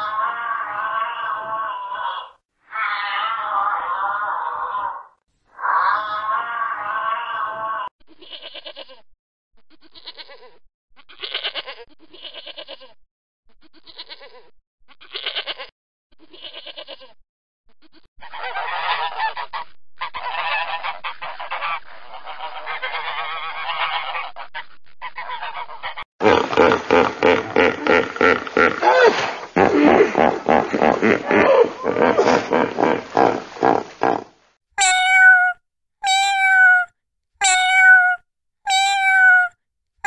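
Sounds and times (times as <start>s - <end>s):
loud animal call: 0.0s - 7.9s, 26.2s - 39.5s
goat bleating: 8.2s - 9.0s, 9.8s - 13.0s, 13.7s - 17.2s, 34.8s - 39.5s.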